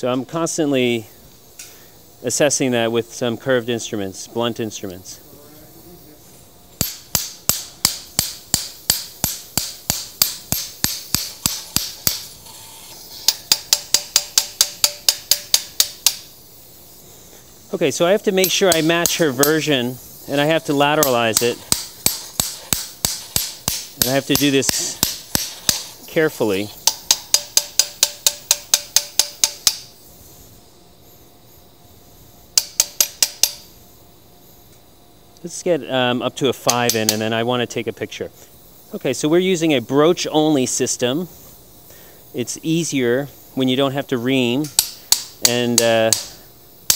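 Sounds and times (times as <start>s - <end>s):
mallet striking metal handle: 6.8s - 12.3s, 13.3s - 16.2s, 21.0s - 25.9s, 26.8s - 29.8s, 32.6s - 33.6s
mallet tapping metal handle: 13.3s - 16.2s, 26.8s - 29.8s, 32.6s - 33.6s.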